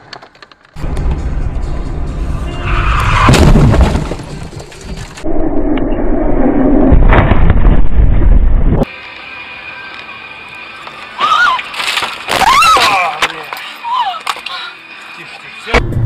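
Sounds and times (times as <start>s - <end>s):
car crashing and banging: 2.7s - 5.2s.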